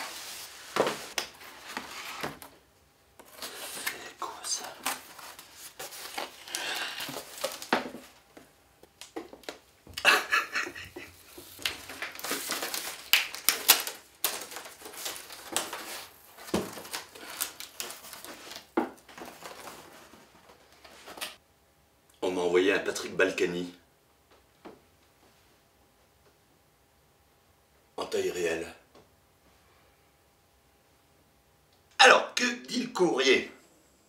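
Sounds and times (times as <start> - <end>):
cardboard rustling and scraping: 0.0 - 2.5, 4.6 - 8.2, 13.8 - 21.3.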